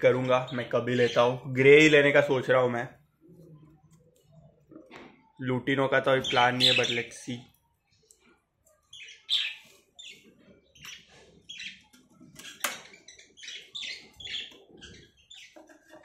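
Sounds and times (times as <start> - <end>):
budgerigars chirping: 6.2 - 7.1, 8.9 - 10.2, 10.8 - 16.0.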